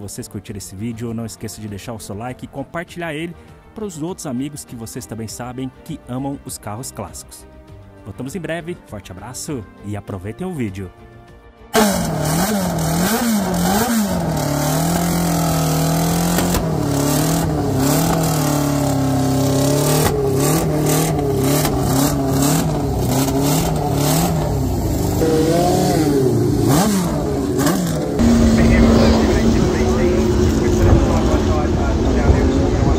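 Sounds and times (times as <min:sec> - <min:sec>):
race car engine revving: 0:11.7 - 0:32.9.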